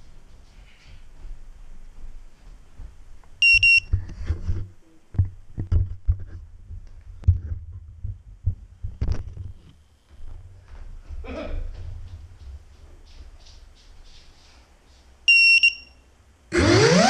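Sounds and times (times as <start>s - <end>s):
short high electronic beeps: 3.4s - 3.8s.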